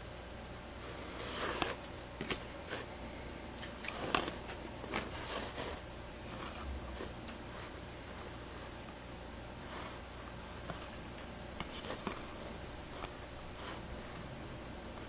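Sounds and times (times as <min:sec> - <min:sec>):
low steady hum: 0:00.0 - 0:15.0
cards flipped by hand: 0:03.6 - 0:05.6, 0:11.6 - 0:12.4.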